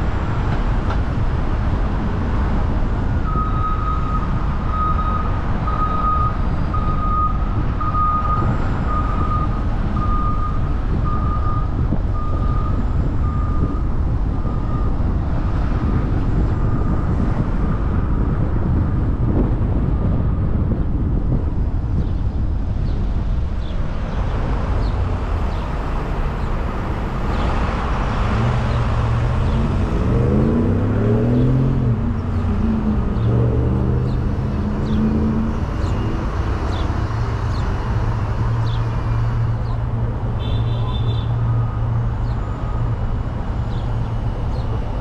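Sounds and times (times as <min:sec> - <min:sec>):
tyre and road noise: 0:00.0 - 0:45.0
car engine accelerating: 0:24.8 - 0:39.1.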